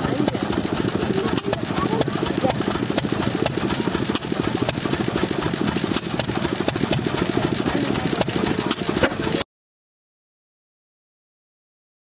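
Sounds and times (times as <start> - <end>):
engine chugging: 0.0 - 9.5.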